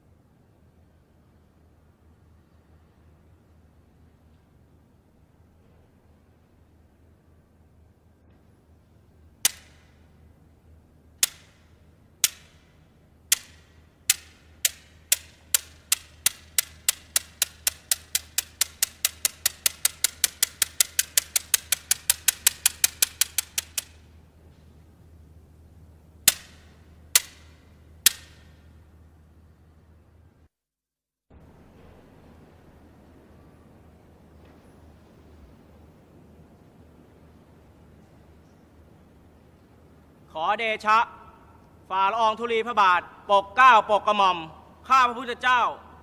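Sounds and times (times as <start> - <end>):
wooden clappers clacking: 9.4 - 10.0, 11.2 - 24.1, 26.2 - 28.6.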